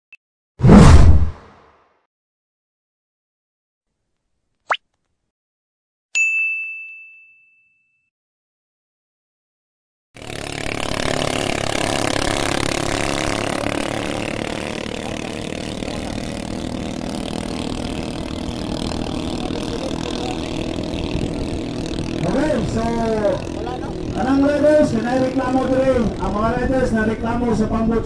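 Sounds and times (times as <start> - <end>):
boat engines at high speed: 10.2 - 28.0.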